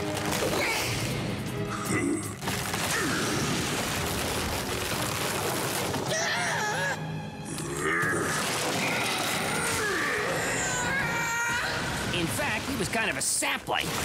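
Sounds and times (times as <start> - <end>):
cartoon background music: 6.0 - 11.5.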